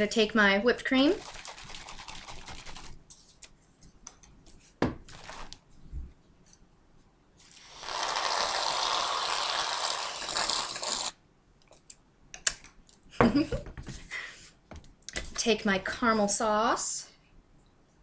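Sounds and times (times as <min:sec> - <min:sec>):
aerosol can spraying: 0:07.6 - 0:11.1.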